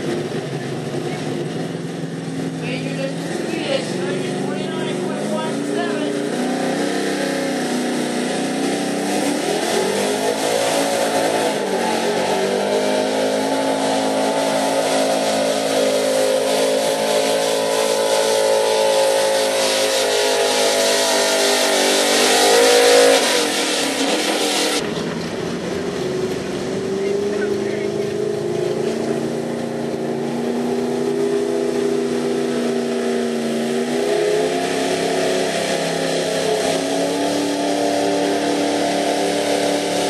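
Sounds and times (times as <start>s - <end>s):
pickup engine at full throttle: 0.0s - 40.0s.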